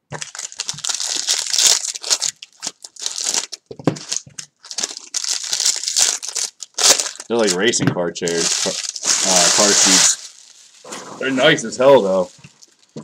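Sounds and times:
foil wrappers crinkling and tearing: 0.1 - 7.7, 8.3 - 13.0
cards being handled: 8.3 - 13.0.

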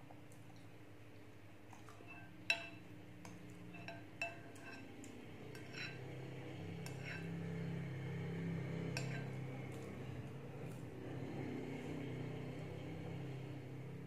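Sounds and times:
spoon clinking on glass bowl: 2.0 - 2.8, 3.6 - 4.9.

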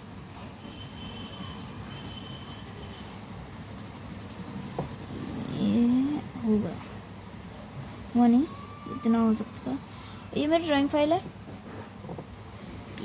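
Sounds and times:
pencil scratching on paper: 0.0 - 7.4.

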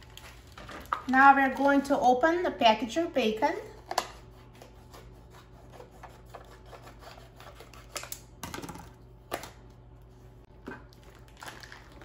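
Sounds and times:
plastic package crinkling: 0.0 - 1.9, 10.8 - 12.0.

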